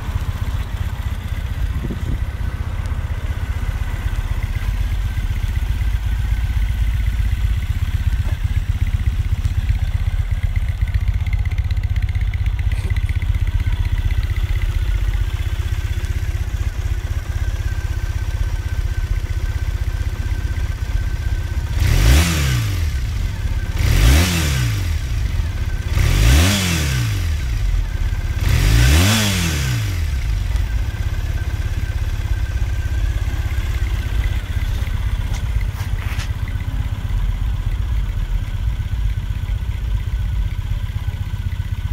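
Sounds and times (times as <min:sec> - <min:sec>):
motorcycle engine idling: 0:00.0 - 0:41.9
engine revving: 0:21.6 - 0:30.8.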